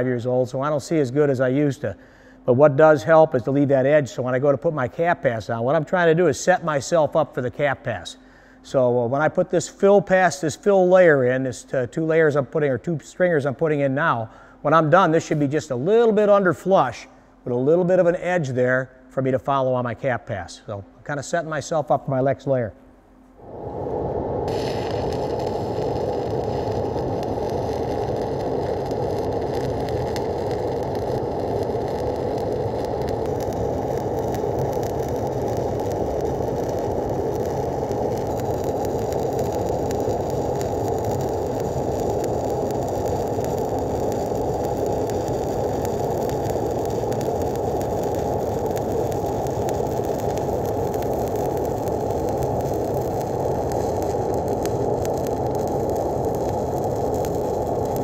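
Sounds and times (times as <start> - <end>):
welding arc crackling: 23.4 - 58.0.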